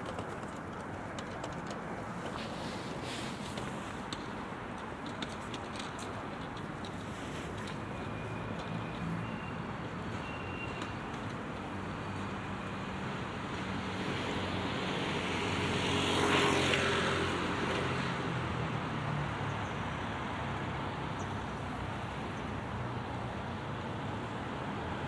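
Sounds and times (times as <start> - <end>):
distant traffic: 0.0 - 25.0
vehicle passing by: 13.7 - 19.4.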